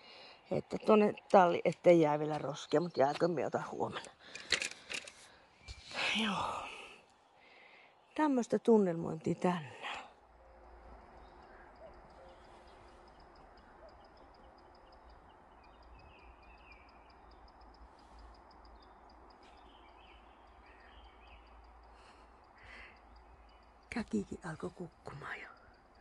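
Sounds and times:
bird chirps: 10.4s - 26.0s
high trill of rapid ticks: 10.4s - 26.0s.

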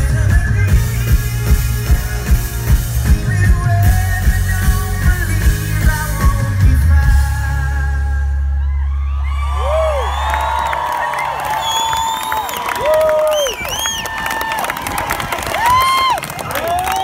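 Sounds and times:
live rock band playing: 0.0s - 8.5s
male lead vocal: 0.0s - 8.9s
audience cheering and whistling: 8.5s - 17.0s.

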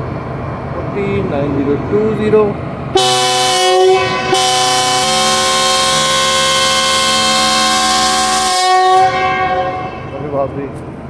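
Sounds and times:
locomotive air horn blast: 3.0s - 10.4s.

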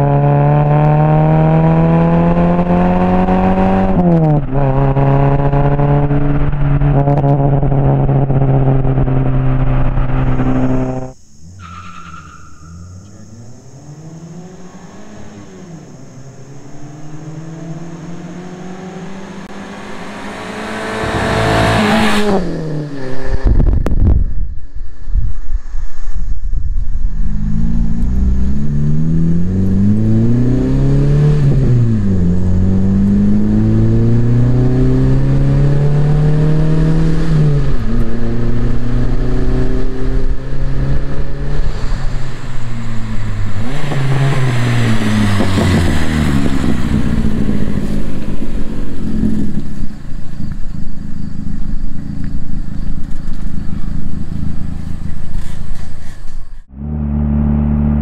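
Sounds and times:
straight-piped car engine revving: 0.0s - 11.2s, 12.8s - 23.5s, 27.4s - 50.5s, 56.6s - 58.0s.

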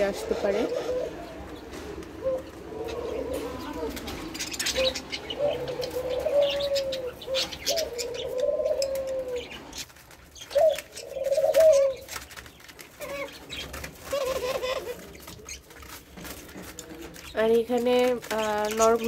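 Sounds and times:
doves cooing: 0.0s - 19.0s.

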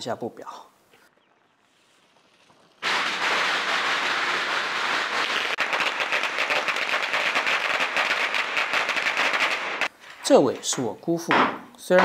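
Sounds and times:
firecrackers crackling: 1.1s - 10.0s.

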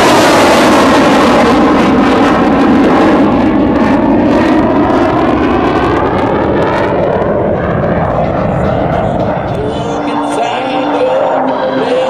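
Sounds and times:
jet engine roar: 0.0s - 12.0s.

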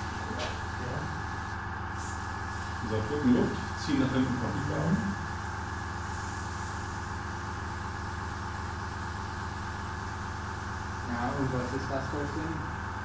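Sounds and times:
airbrush compressor humming: 0.0s - 13.0s.

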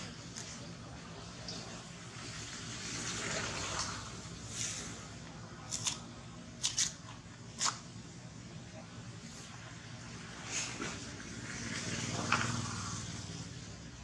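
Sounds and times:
coconut husk tearing: 5.6s - 7.8s.

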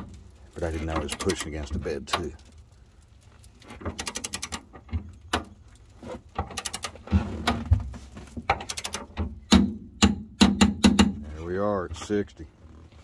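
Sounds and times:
torque wrench ratchet clicking: 8.6s - 9.0s.

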